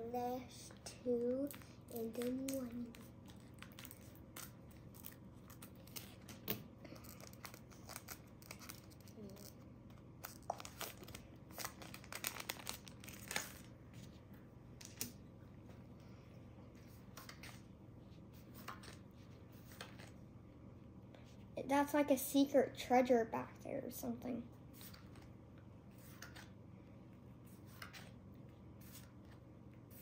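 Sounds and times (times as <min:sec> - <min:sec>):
foil wrapper crinkling and tearing: 0:01.5 - 0:09.6, 0:10.2 - 0:13.8.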